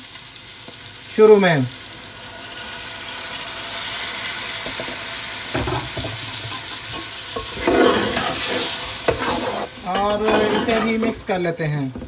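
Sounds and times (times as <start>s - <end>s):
food sizzling in a pot: 0.0s - 12.0s
metal ladle scraping pot: 6.5s - 11.3s.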